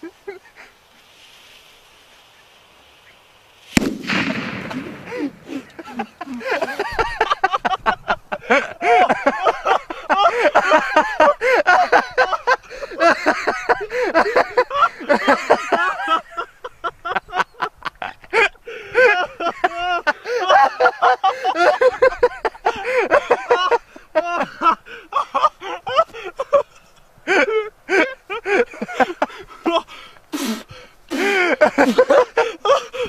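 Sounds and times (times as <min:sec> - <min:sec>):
person laughing loudly: 0:04.2 - 0:29.9, 0:31.1 - 0:33.0.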